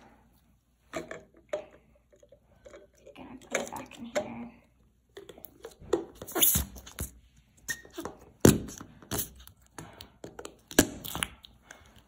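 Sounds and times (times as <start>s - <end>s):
slime squelching: 5.2s - 12.0s.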